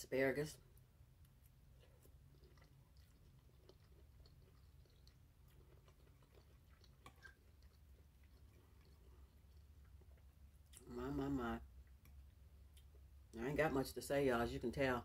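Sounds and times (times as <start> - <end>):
chewing food: 0.6 - 13.4.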